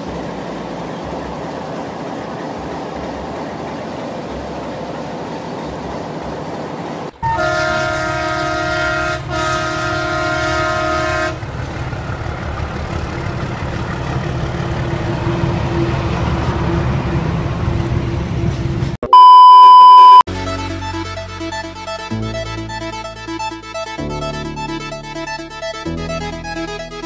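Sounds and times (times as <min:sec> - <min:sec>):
train rumble: 0:00.0 - 0:19.0
locomotive air horn blasts: 0:07.2 - 0:11.4.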